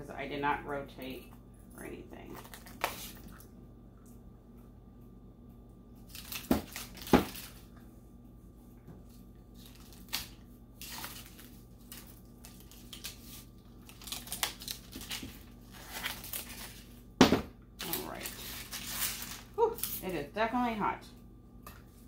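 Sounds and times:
plastic wrap crinkling and tearing: 0:02.3 - 0:03.2, 0:06.0 - 0:07.7, 0:09.5 - 0:17.0, 0:17.8 - 0:20.1.

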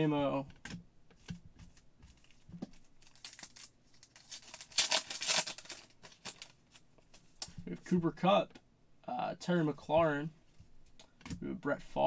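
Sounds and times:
foil wrapper tearing and crumpling: 0:03.0 - 0:06.8.

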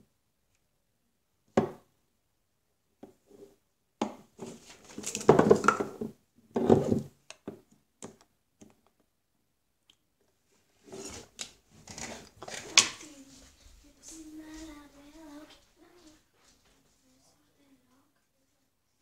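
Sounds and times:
rustling and clattering: 0:10.8 - 0:17.0.

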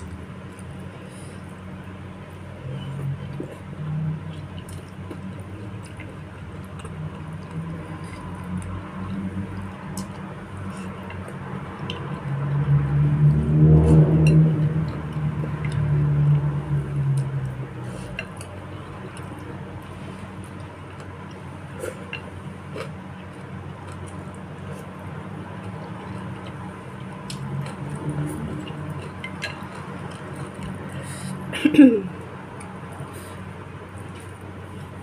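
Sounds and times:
close chewing: 0:03.3 - 0:12.2, 0:17.1 - 0:31.2.

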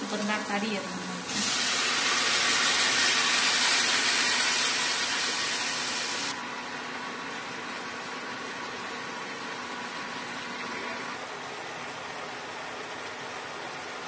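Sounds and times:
vegetables sizzling in hot oil: 0:00.0 - 0:06.3.

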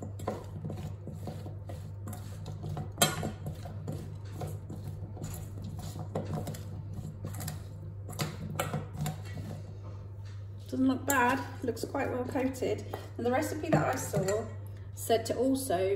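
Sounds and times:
spoon scraping in metal bowl: 0:00.0 - 0:09.8.

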